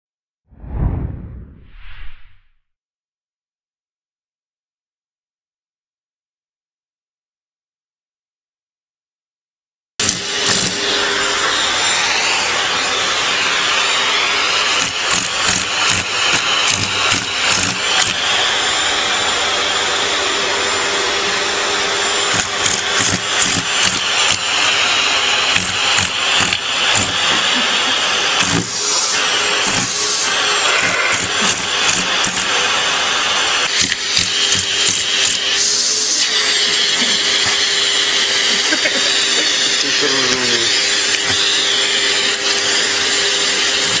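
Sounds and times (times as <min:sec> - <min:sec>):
vacuum cleaner whine: 0:10.0 - 0:44.0.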